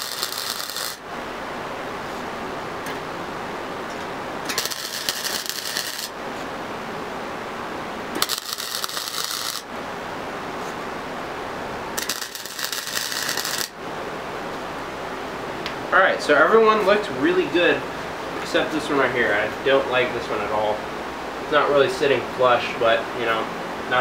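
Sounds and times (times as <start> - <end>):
welder arc crackling: 0.0 - 1.1, 3.9 - 6.6, 8.1 - 9.8, 11.8 - 13.8.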